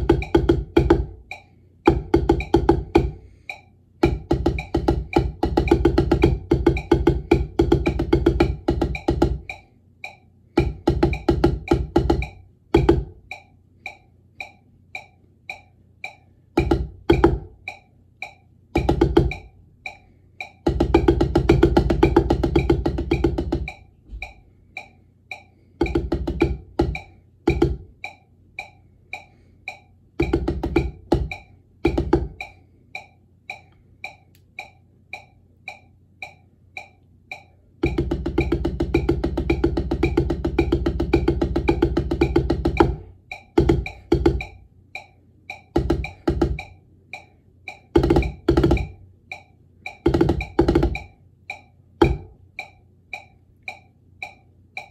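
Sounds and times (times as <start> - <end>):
drumsticks striking practice pad: 0.0 - 54.9
steady high metronome click: 0.0 - 54.9.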